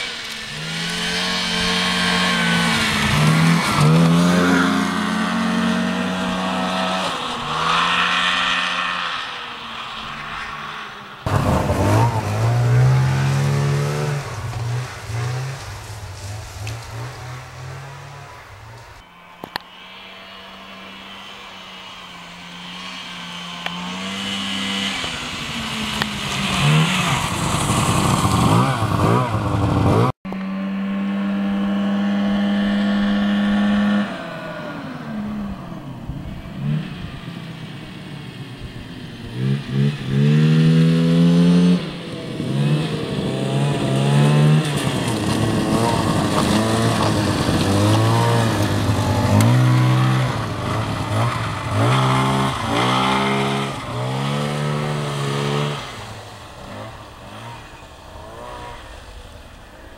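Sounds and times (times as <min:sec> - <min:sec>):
snowmobile engines revving: 0:00.0 - 0:59.9.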